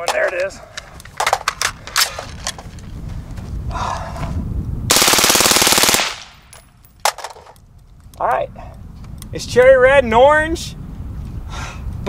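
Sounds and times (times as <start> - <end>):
suppressed rifle full-auto burst: 4.9 - 6.4.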